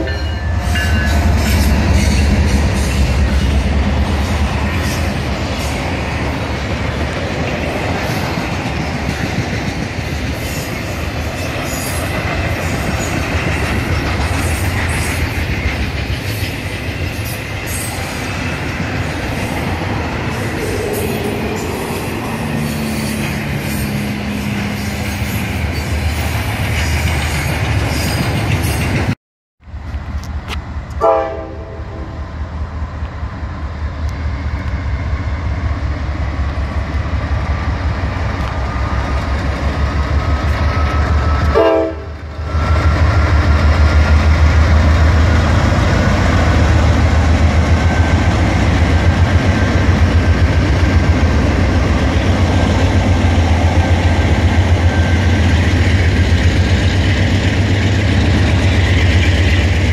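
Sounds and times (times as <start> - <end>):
locomotive horn blasts: 0.0 - 2.2, 31.0 - 32.1, 41.4 - 42.2
train wheels clattering: 0.0 - 29.2.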